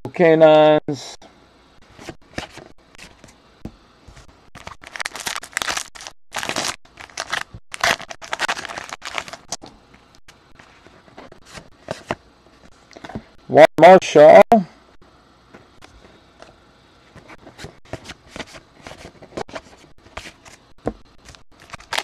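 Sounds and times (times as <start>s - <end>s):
wrapper being torn open: 4.6s - 9.5s, 21.6s - 22.0s.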